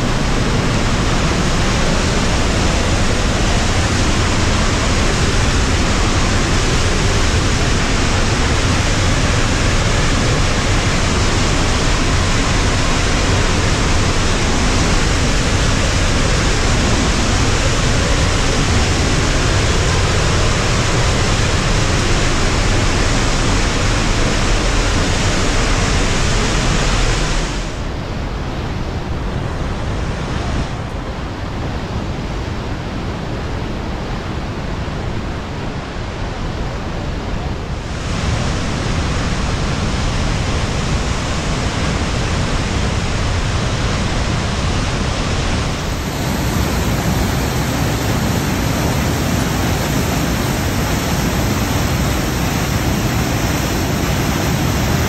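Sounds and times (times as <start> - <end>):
waterfall and rapids rushing: 0.0 - 55.0.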